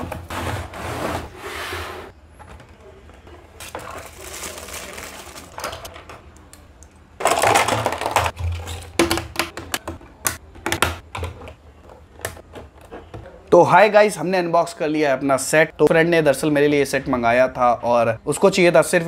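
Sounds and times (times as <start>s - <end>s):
paper and packaging rustling: 3.6s - 6.0s
hard plastic parts clattering: 7.2s - 10.0s.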